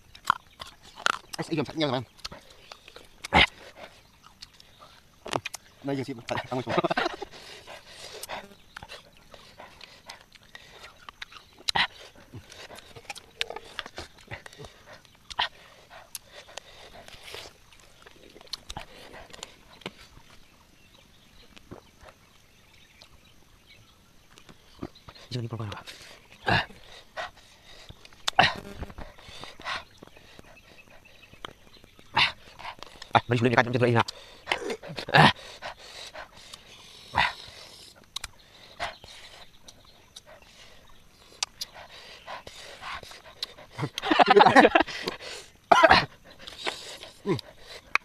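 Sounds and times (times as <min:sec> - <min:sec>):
mouths chewing with smacks: 0:00.0 - 0:48.0
drinking from plastic bottle: 0:00.1 - 0:20.6, 0:24.3 - 0:33.3.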